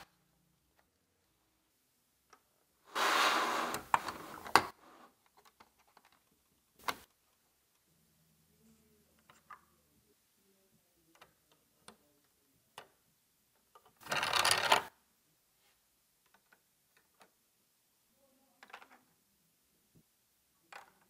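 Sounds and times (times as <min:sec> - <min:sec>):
plastic lego pieces clicking: 0:13.6 - 0:14.9.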